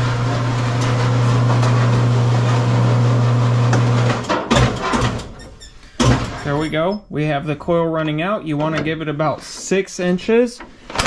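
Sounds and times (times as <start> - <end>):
machine motor humming: 0.0 - 4.2.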